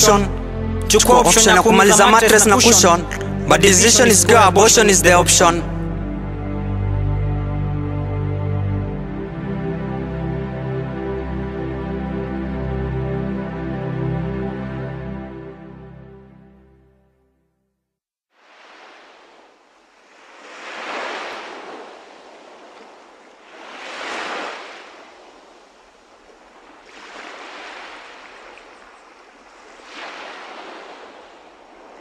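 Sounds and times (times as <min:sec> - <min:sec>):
ocean waves washing in: 0:18.3 - 0:32.0.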